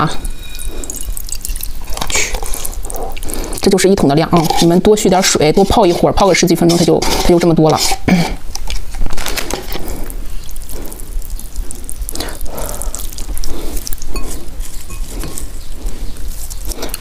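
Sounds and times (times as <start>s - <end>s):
broth dripping and splashing: 0.0s - 3.8s, 8.6s - 17.0s.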